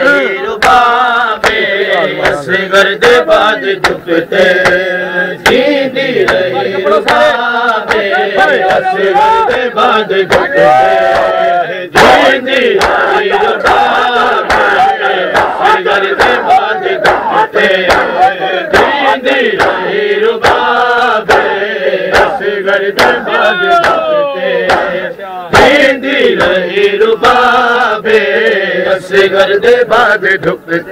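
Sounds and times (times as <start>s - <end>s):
crowd of men chanting: 0.0s - 30.9s
lead voice singing: 0.0s - 30.9s
hands slapping bare chests: 7.0s - 7.3s, 12.8s - 13.0s, 13.6s - 16.4s, 17.0s - 19.0s, 19.6s - 19.8s, 21.3s - 22.4s, 23.0s - 23.2s, 23.8s - 24.0s, 24.7s - 24.9s.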